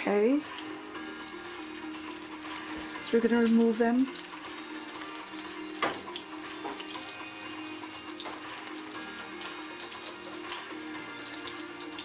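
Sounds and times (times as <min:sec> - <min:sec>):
fish sizzling in hot oil: 0:00.0 - 0:12.0
soft background music: 0:00.0 - 0:12.0.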